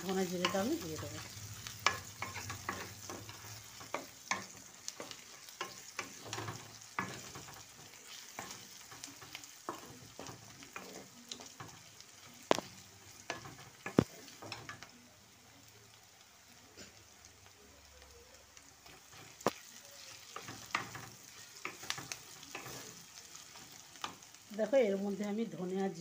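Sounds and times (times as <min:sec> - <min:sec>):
onions sizzling in oil: 0:00.0 - 0:26.0
spatula scraping a pan: 0:00.2 - 0:11.9, 0:18.8 - 0:24.3.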